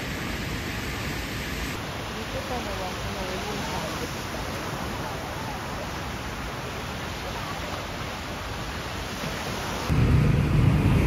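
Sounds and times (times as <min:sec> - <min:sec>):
small waves washing on sand: 0:00.0 - 0:10.6
loud low rumble: 0:09.9 - 0:11.0.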